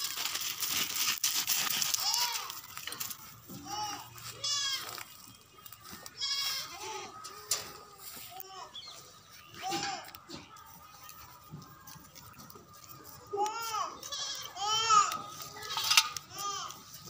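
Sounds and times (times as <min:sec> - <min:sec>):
goats bleating: 0:03.6 - 0:05.2, 0:06.1 - 0:08.2, 0:13.4 - 0:17.0.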